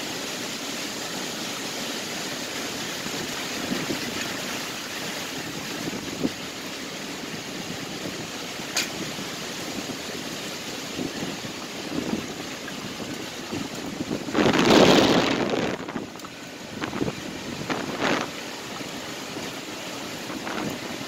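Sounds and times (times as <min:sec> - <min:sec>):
wind rushing through trees: 0:00.0 - 0:21.0.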